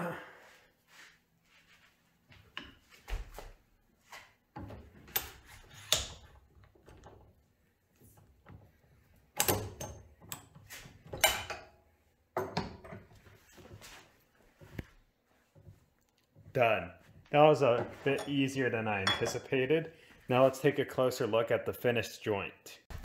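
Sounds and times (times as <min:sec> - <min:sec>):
press tool metal clicks and clanks: 0:08.4 - 0:11.8.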